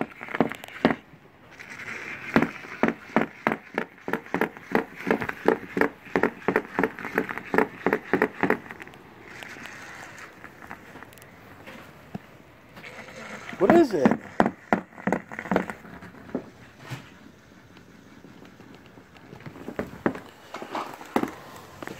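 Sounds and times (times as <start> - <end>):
toy ball clicking against plastic: 0.0 - 10.2.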